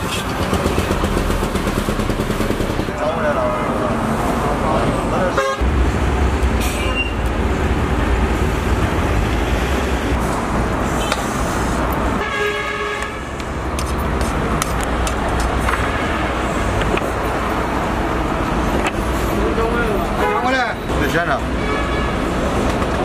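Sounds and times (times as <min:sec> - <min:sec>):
street traffic rumbling: 0:00.0 - 0:23.0
vehicle horn: 0:05.3 - 0:05.6, 0:12.2 - 0:13.3, 0:20.2 - 0:20.6, 0:21.6 - 0:22.3.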